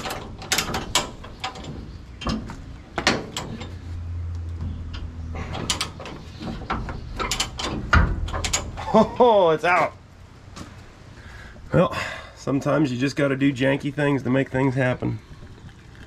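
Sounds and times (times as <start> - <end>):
metal clanks: 0.0 - 3.9, 4.5 - 9.2
low hum: 0.0 - 12.2.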